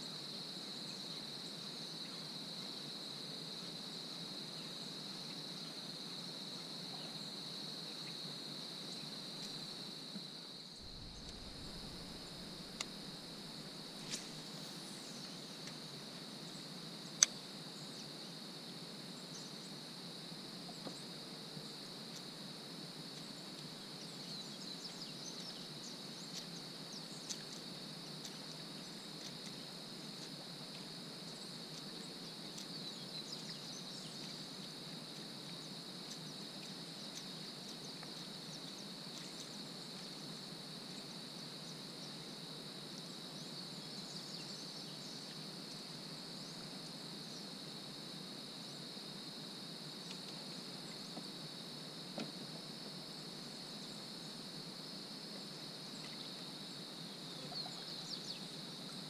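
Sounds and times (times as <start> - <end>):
insects buzzing: 0.0 - 59.0
faint ticks: 9.4 - 10.3, 14.0 - 15.8, 17.0 - 17.4, 27.2 - 32.8, 33.4 - 40.2, 50.0 - 51.3.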